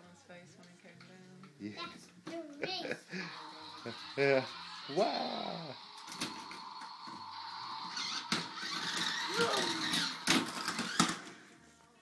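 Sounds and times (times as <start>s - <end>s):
toy car motor whirring: 3.3s - 11.3s
child's vocal sound: 9.3s - 10.0s.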